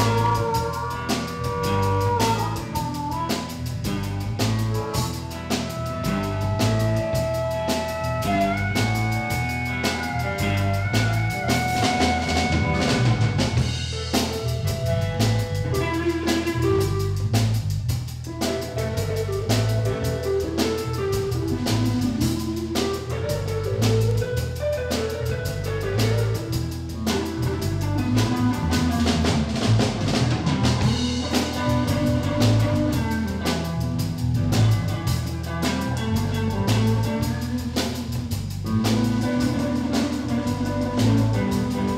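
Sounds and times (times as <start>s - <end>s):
harmonica holding long notes: 0.0s - 17.2s
bass: 0.0s - 41.9s
drum kit: 0.0s - 41.9s
electric guitar: 0.0s - 41.9s.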